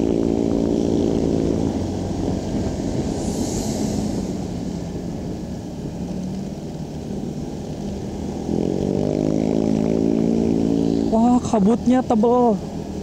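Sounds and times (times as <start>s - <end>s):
motorcycle engine running: 0.0s - 3.2s, 5.0s - 13.0s
road and wind noise: 0.0s - 13.0s
steady engine drone: 0.0s - 13.0s.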